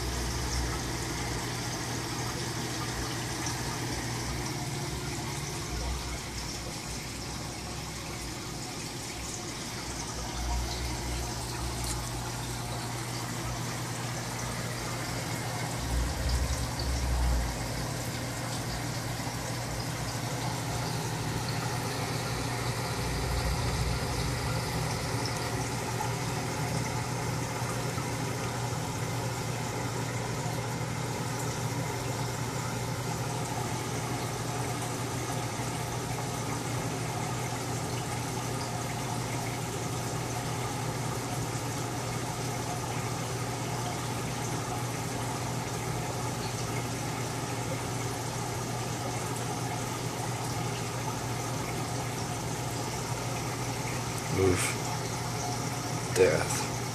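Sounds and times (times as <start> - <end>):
steady low hum: 0.0 - 43.0.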